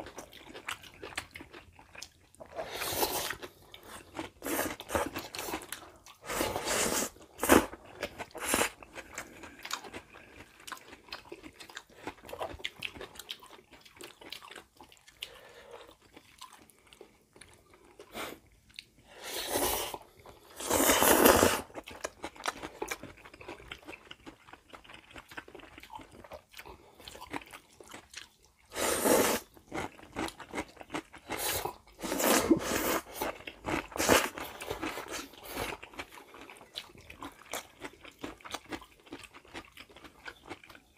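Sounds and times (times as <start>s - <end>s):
wet chewing: 0.0s - 19.0s
noodle slurping: 2.5s - 8.8s, 19.2s - 21.7s, 28.7s - 29.5s, 31.3s - 35.6s.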